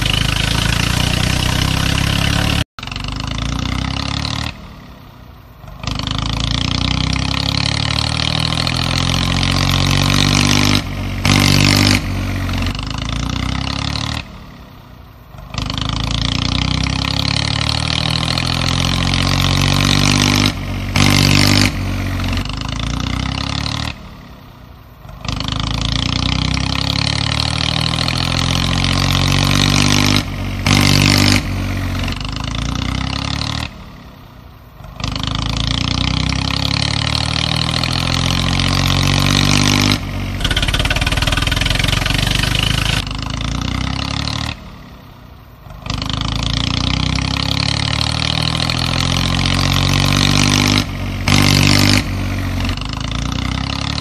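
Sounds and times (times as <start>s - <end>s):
tractor engine revving: 0.0s - 4.6s, 5.7s - 14.2s, 35.3s - 44.7s.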